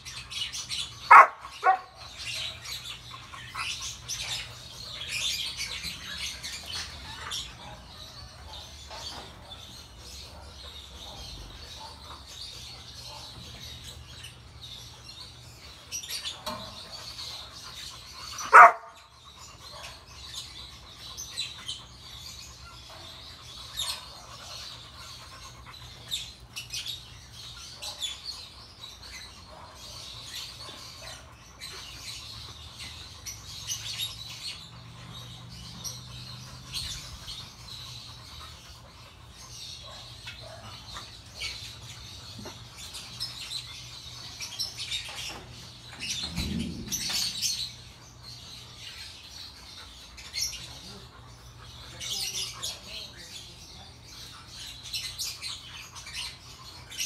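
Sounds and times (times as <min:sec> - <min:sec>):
small birds chirping: 0:00.0 - 0:57.0
dog bark: 0:01.1 - 0:02.0, 0:18.5 - 0:19.0.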